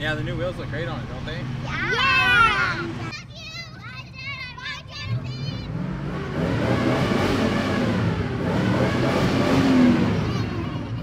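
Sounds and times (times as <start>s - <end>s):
engine revving: 5.1s - 10.6s.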